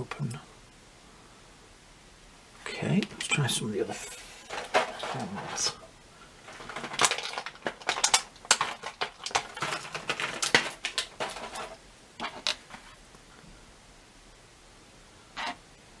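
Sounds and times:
small plastic parts clicking: 6.5s - 12.8s.

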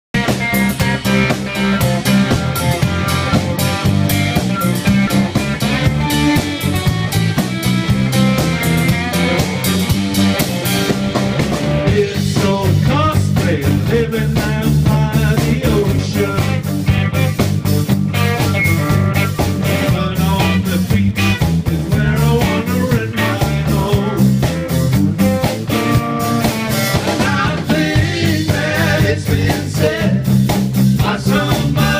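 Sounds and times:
live rock band playing: 0.1s - 31.9s
guitar notes bending: 0.2s - 11.9s, 15.9s - 20.6s, 24.5s - 28.8s.

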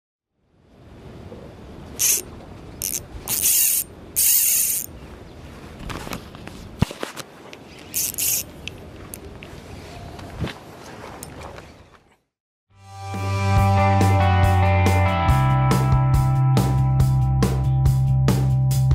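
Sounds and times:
fishing reel ratcheting: 2.0s - 4.9s, 7.9s - 8.5s.

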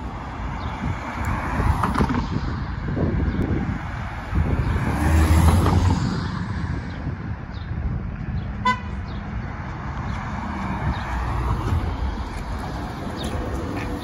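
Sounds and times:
street traffic passing: 0.0s - 14.0s
vehicle horn toot: 8.6s - 9.0s.

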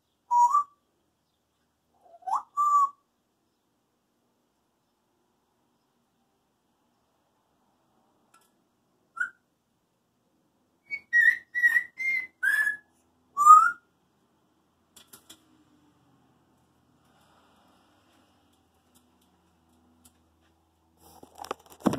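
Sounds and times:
parrot whistling: 2.2s - 3.0s, 9.2s - 9.4s, 10.8s - 13.8s.

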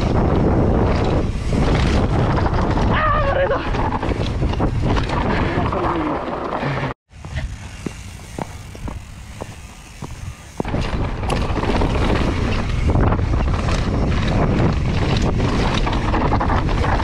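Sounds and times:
wind on microphone: 0.0s - 6.7s, 9.8s - 17.0s
bike rattling: 0.0s - 17.0s
tyres rumbling on loose dirt: 0.0s - 17.0s.

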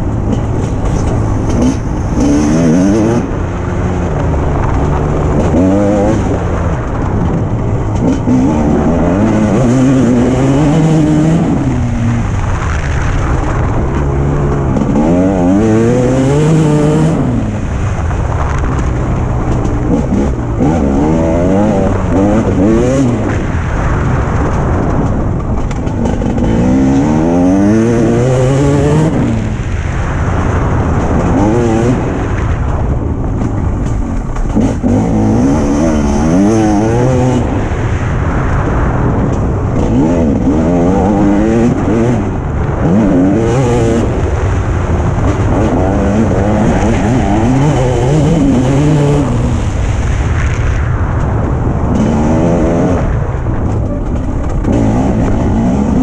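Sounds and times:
motocross bike engine revving: 0.0s - 32.9s, 33.5s - 50.3s, 51.8s - 53.2s, 53.8s - 56.0s.

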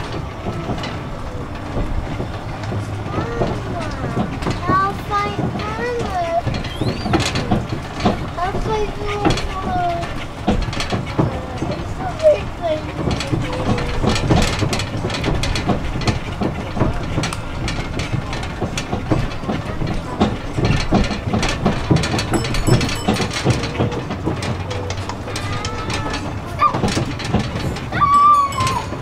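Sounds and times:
carriages rattling and knocking: 0.0s - 29.0s
road train running rumble: 0.0s - 29.0s.

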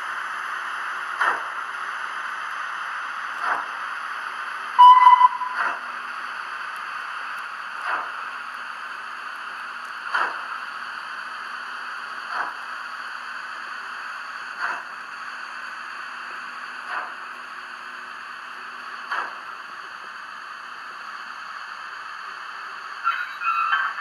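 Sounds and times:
high whistle toot: 4.8s - 5.6s.

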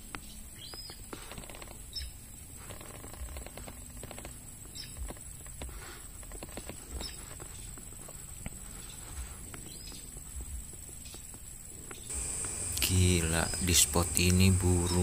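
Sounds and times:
high-pitched hiss: 0.0s - 15.0s
chirping bird call: 11.9s - 15.0s.

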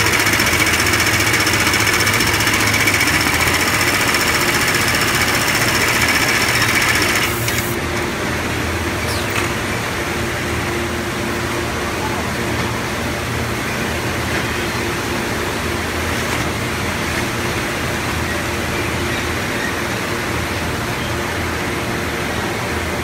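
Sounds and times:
sewing machine stitching: 0.0s - 7.8s
machine hum: 0.0s - 22.1s.

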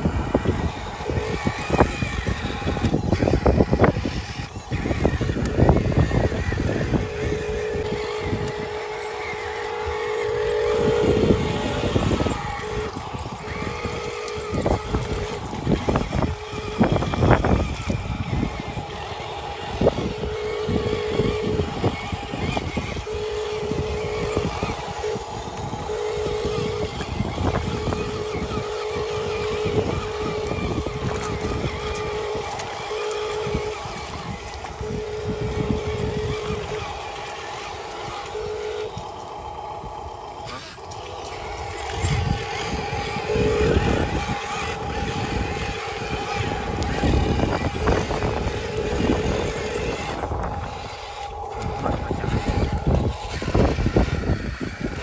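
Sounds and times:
toy truck motor whining: 0.0s - 55.0s.

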